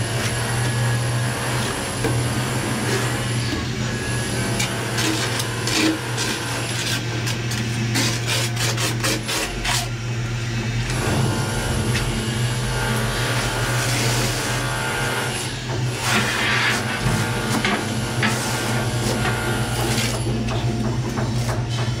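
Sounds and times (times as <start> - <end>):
low hum: 10.8 - 14.5.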